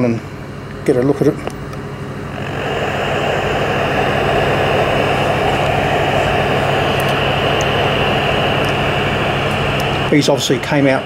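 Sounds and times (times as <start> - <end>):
television static hiss: 2.3 - 11.0.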